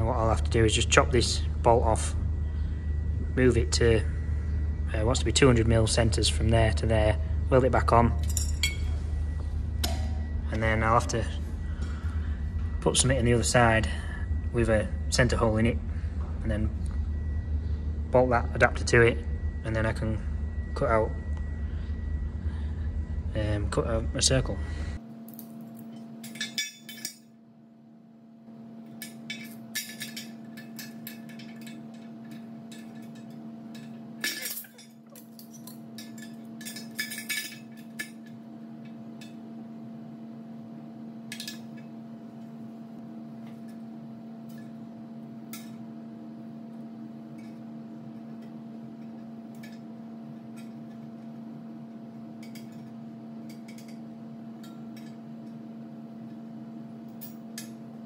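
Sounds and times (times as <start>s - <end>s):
steady low hum: 0.0s - 58.0s
metal parts clinking on steel rim: 8.2s - 8.9s, 25.3s - 27.3s, 28.9s - 38.4s, 41.3s - 41.9s, 48.4s - 51.3s, 52.4s - 54.0s.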